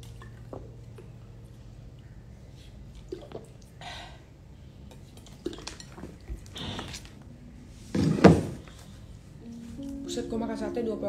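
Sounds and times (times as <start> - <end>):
drinking from plastic bottle: 2.9 - 3.7.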